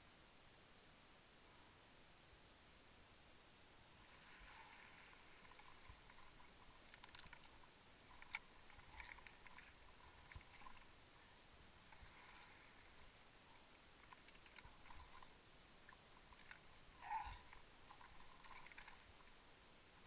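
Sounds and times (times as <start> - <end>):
underwater pebbles clicking: 5.4 - 10.9, 14.0 - 15.3, 15.9 - 16.7, 17.5 - 19.3.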